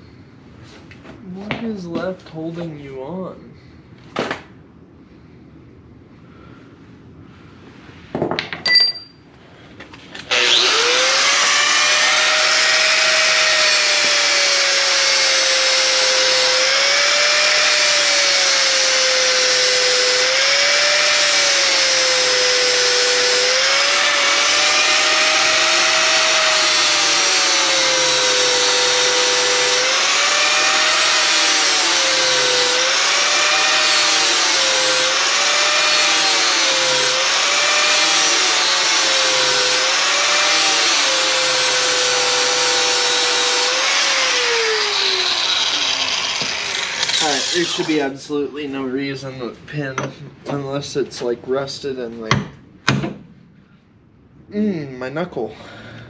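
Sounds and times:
metallic clank: 8.6s - 9.3s
angle grinder grinding metal: 10.2s - 48.4s.

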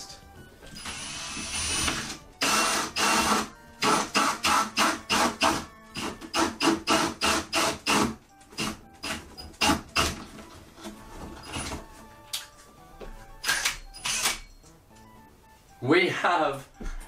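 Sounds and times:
cordless drill cutting: 0.8s - 10.1s, 13.5s - 14.4s.

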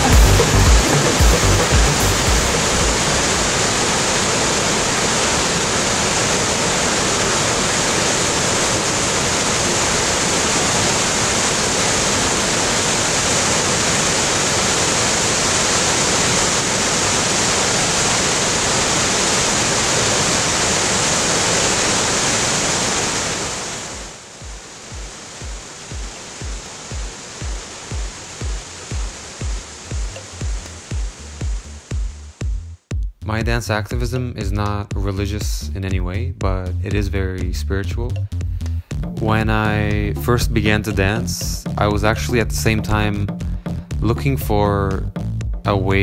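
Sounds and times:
waterfall rushing: 0.0s - 32.4s.

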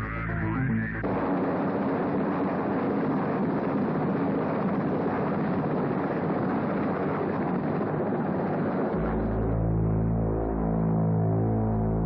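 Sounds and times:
helicopter engine and rotor: 0.1s - 9.0s
wind: 0.9s - 10.0s.

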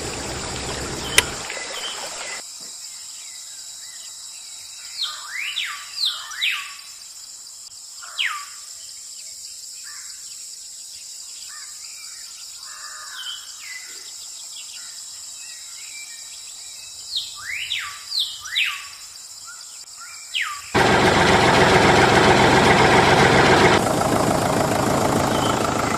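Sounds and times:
birds whistling: 0.0s - 2.4s, 25.2s - 25.9s
high insect drone: 0.0s - 21.3s
loud noise: 20.8s - 25.9s.

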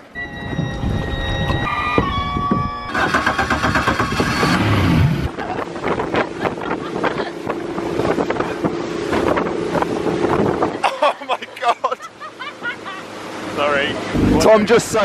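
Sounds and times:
outboard engine drone: 0.0s - 15.0s
wind buffeting microphone: 0.2s - 10.9s
rushing water: 5.2s - 15.0s.

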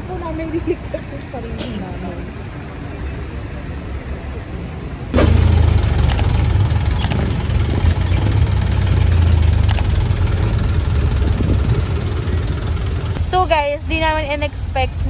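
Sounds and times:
car engine rumbling: 5.0s - 15.0s.

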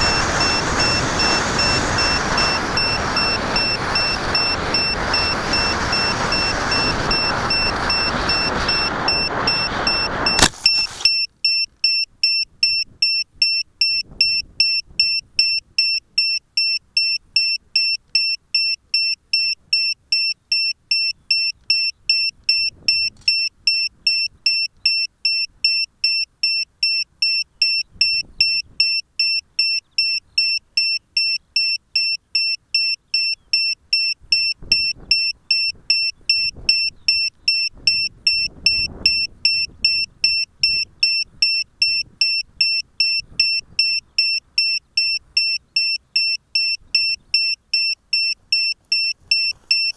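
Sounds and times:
model plane flight noise: 0.0s - 11.0s
high electronic beeping: 0.0s - 49.9s.

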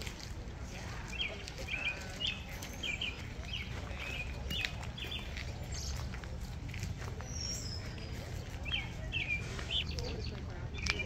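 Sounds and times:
small songbird chirping: 1.1s - 6.1s, 7.2s - 11.0s.

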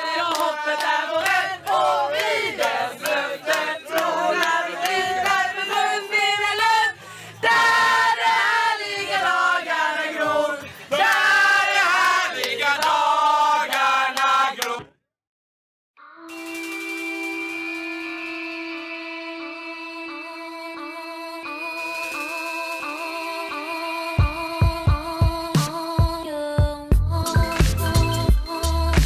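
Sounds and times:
group singing loudly: 0.0s - 14.9s.

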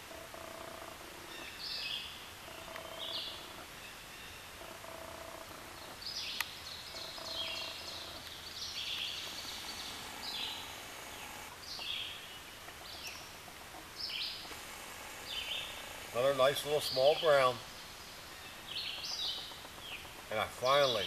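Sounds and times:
songbird singing: 0.0s - 21.0s
faint hiss: 5.8s - 21.0s.

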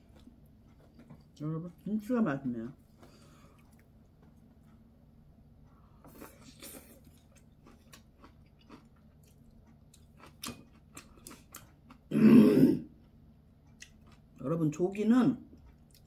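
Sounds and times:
chewing: 0.0s - 1.9s, 2.7s - 4.8s, 6.0s - 12.1s, 12.9s - 14.4s, 15.5s - 16.0s
person clearing throat: 12.1s - 12.9s.

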